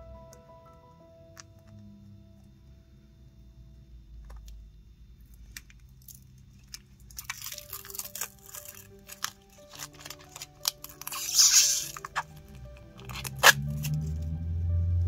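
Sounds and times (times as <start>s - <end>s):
soft background music: 0.0s - 15.0s
plastic film crinkling: 5.4s - 14.2s.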